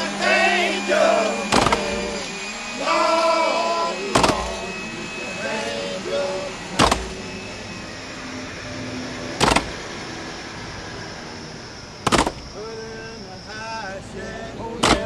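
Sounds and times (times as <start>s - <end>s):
steady background noise: 0.0s - 15.0s
sharp double knocks: 6.8s - 7.1s, 9.4s - 9.8s, 12.0s - 12.4s.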